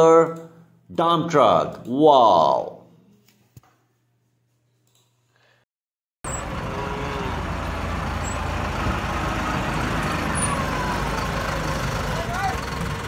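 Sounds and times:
diesel truck engine running: 6.2 - 13.0.

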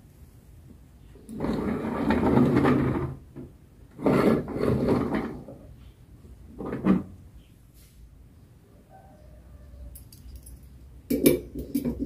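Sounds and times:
plastic toy wheels rolling: 1.2 - 5.8.

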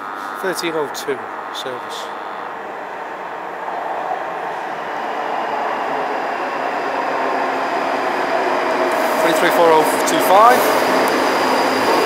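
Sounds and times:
train wheels rumbling on rails: 2.4 - 12.0.

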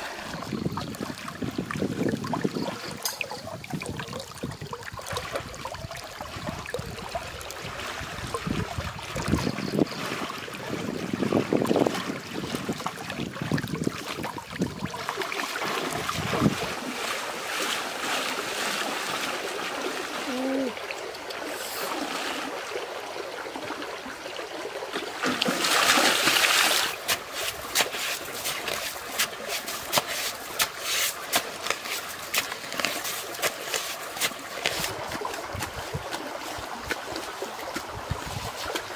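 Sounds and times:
wading through water: 0.0 - 38.9
digging into wet mud: 25.2 - 38.9.

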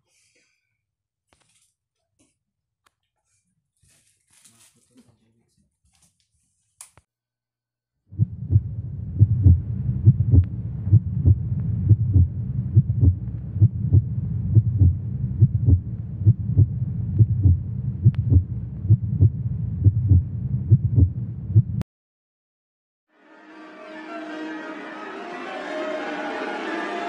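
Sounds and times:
heartbeat thumps: 8.1 - 21.8
throbbing hum: 8.1 - 21.8.

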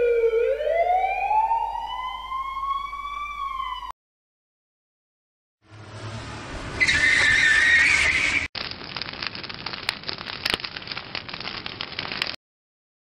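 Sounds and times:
emergency siren wailing: 0.0 - 4.0
fire crackling and popping: 6.8 - 12.4.

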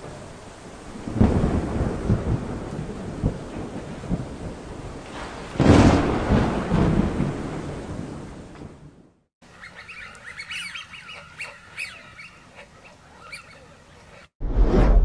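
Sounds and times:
thunder rumbling with crackling: 0.0 - 11.2
loud sharp thunderclap: 0.9 - 9.2.

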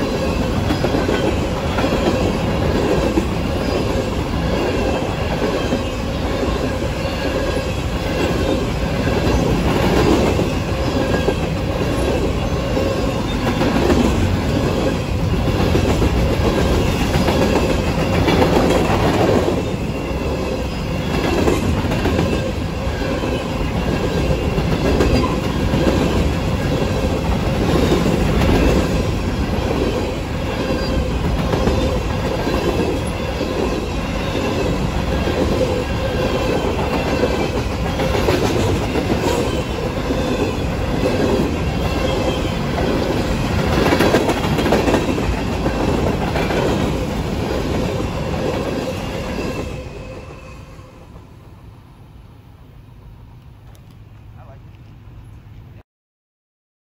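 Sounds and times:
train wheels clacking: 0.0 - 50.1
wheels ringing on rails: 0.0 - 51.3
train rumble: 0.0 - 55.8.

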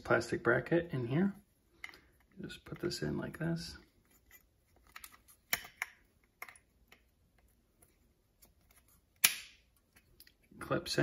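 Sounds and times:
bracket snapping into place: 4.8 - 7.0.

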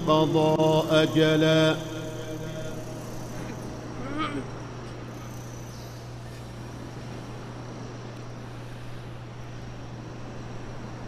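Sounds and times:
even hiss: 0.0 - 9.2
low hum: 0.0 - 11.0.

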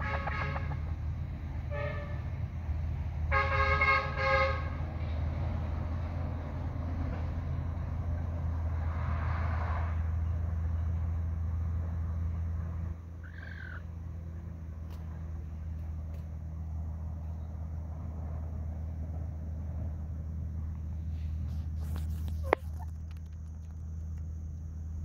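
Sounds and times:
steady low hum: 10.0 - 25.0
short bird call: 13.2 - 13.9
faint ticks: 22.0 - 24.8.

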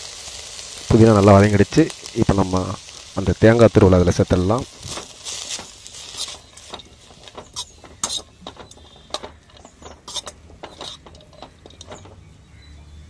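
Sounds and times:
metal spatula scraping a pan: 4.8 - 12.3.

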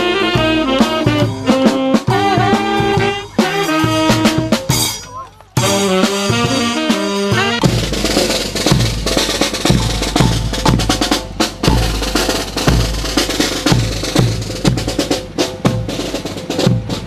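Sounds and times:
bass drum beat: 0.0 - 17.0
snare drum rolls: 0.0 - 17.0.

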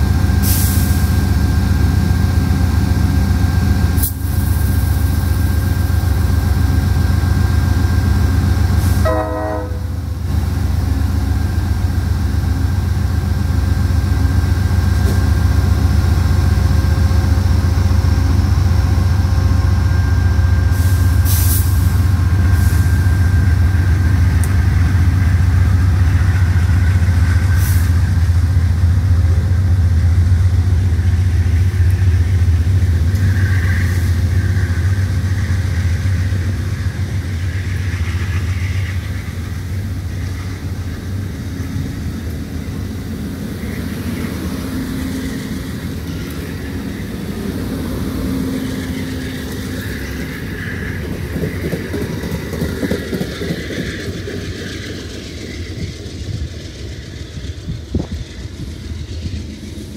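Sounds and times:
diesel locomotive rumble: 0.0 - 59.9
short air hisses: 0.4 - 1.2, 20.7 - 23.2.

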